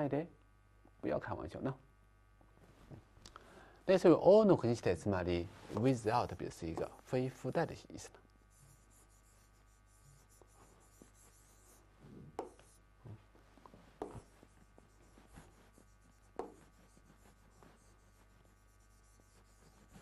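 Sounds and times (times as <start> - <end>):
pen writing on a board: 8.5 - 12.8, 14.0 - 20.0.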